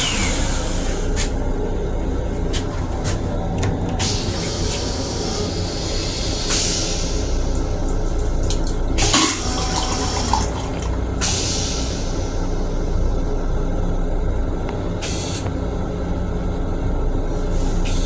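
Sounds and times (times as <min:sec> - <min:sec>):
low rumble of railcar: 0:00.0 - 0:18.0
toilet flushing water rushing: 0:06.3 - 0:12.2.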